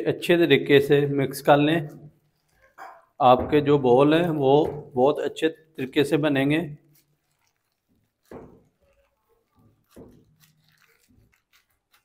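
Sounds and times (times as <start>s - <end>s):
squishing of mashed potato: 1.9s - 3.2s, 6.4s - 12.0s.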